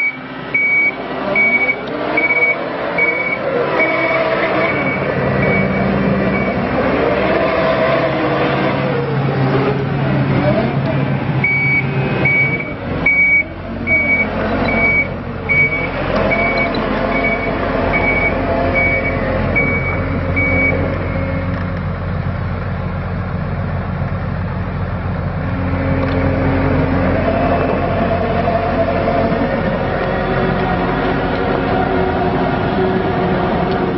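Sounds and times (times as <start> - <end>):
backup alarm beeping: 0.0 - 6.6, 11.4 - 21.4
diesel engine running: 0.0 - 33.9.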